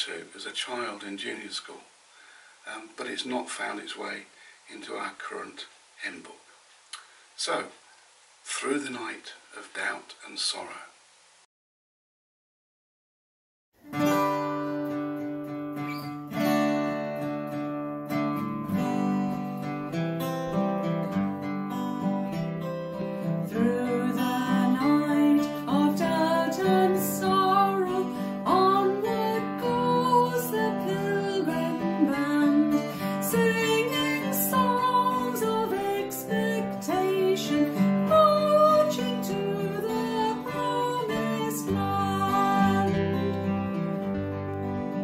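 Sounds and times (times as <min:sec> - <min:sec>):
acoustic guitar strumming: 0:13.8 - 0:45.0
woman singing a hymn: 0:23.4 - 0:43.3.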